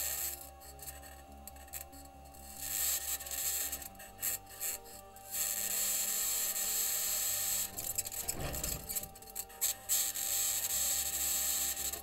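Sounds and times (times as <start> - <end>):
wheels scraping over ground: 7.6 - 9.4.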